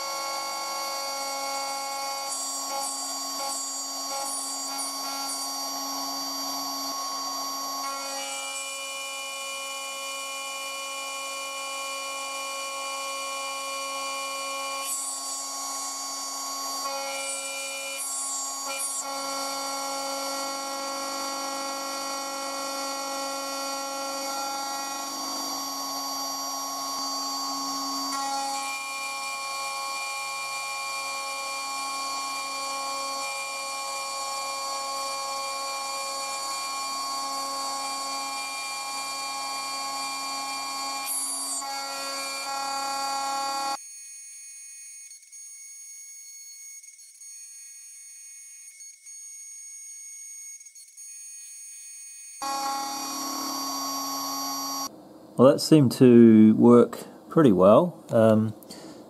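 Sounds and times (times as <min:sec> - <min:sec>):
router spindle milling metal: 0:00.0 - 0:43.8, 0:52.4 - 0:54.9.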